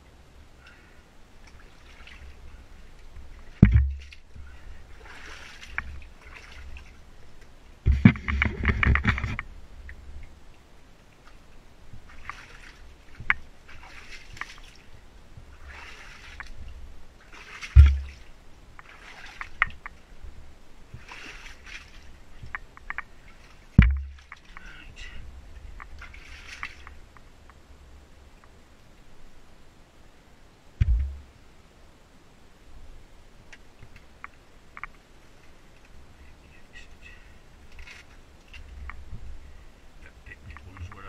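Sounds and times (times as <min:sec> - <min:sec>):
boots sloshing through shallow water: 0:01.4 - 0:09.3, 0:11.9 - 0:20.1, 0:20.9 - 0:24.8, 0:25.8 - 0:27.0
heavy low thumps: 0:17.8 - 0:18.2, 0:30.8 - 0:31.3.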